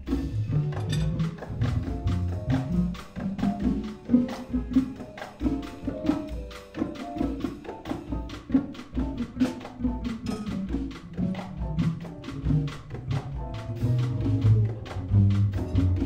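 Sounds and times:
upright bass line: 0:00.0 - 0:04.9, 0:11.1 - 0:16.0
drums and hand percussion: 0:00.0 - 0:16.0
keyboard notes: 0:00.0 - 0:16.0.

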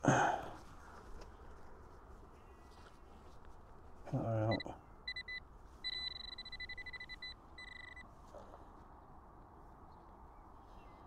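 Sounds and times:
metal detector beeping: 0:04.5 - 0:08.0.

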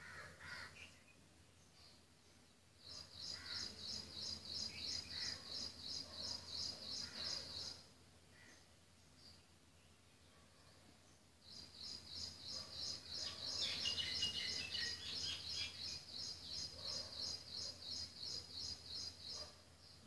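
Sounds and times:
lower bird chirps: 0:00.6 - 0:20.0
small bird chirping: 0:11.0 - 0:20.0.

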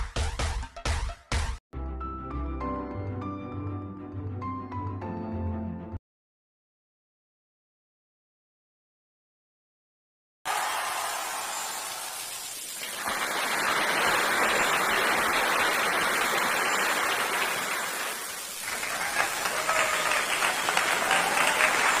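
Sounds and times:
crowd applause: 0:10.5 - 0:22.0
separate claps: 0:12.8 - 0:22.0.

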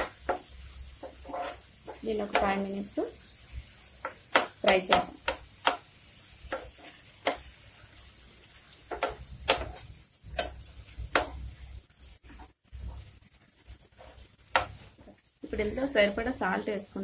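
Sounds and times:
metal spatula scraping frying pan: 0:00.0 - 0:02.6.

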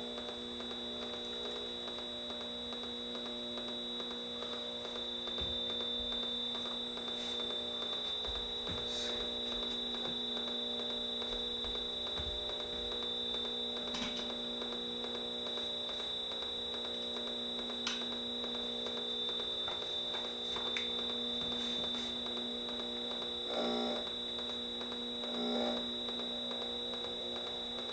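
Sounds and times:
electric hum: 0:00.0 - 0:27.9
high steady whine: 0:00.0 - 0:27.9.

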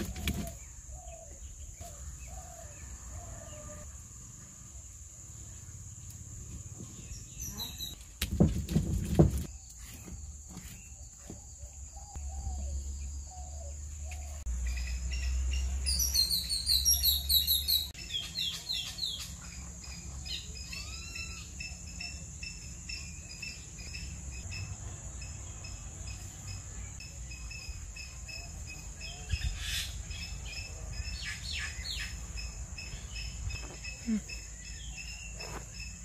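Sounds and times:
birds chirping: 0:00.0 - 0:03.8, 0:04.7 - 0:08.1, 0:09.2 - 0:36.0.

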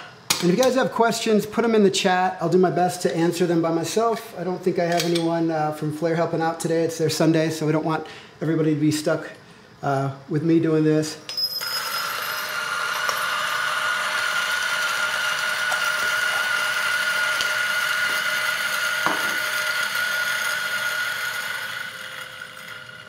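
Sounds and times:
coffee grinder whining: 0:11.4 - 0:23.0.

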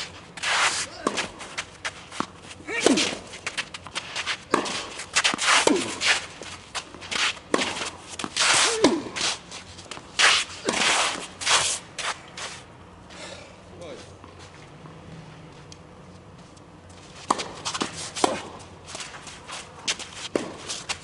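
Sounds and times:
racket hitting tennis ball: 0:00.0 - 0:12.2, 0:17.2 - 0:21.0
footsteps and shoe scuffs: 0:00.0 - 0:12.7.

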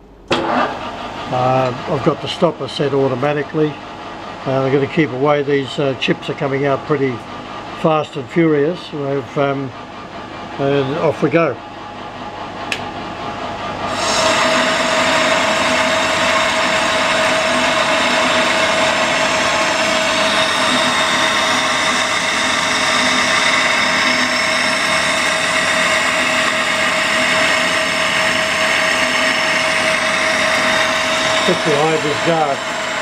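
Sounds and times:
metal lathe cutting: 0:13.8 - 0:33.0.

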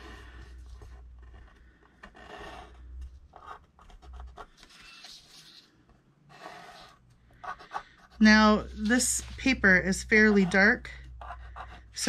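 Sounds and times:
pencil scratching on paper: 0:02.2 - 0:02.8, 0:06.3 - 0:12.0.

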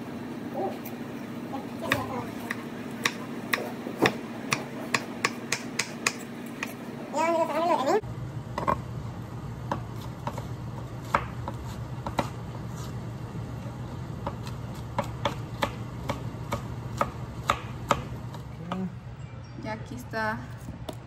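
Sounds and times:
knife chopping on wooden board: 0:01.8 - 0:06.8, 0:09.7 - 0:12.4, 0:14.2 - 0:18.8.

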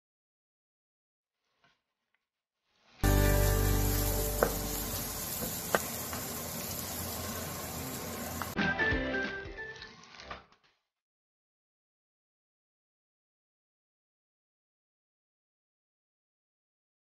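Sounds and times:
background music: 0:03.0 - 0:05.4, 0:08.6 - 0:10.1
garlic sizzling in hot fat: 0:03.0 - 0:10.3.

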